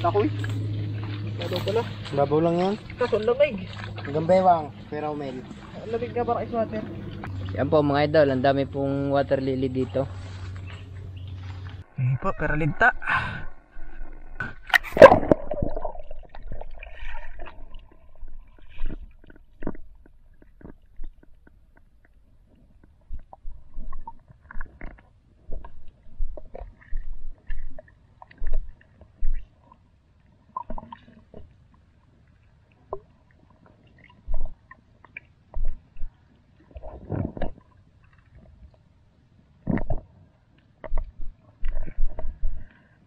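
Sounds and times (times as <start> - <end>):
rush of water: 0.0 - 8.7
muffled underwater sounds: 0.0 - 11.0, 11.6 - 43.0
low thumps clicks and gurgles: 0.0 - 31.9, 32.8 - 38.8, 39.6 - 43.0.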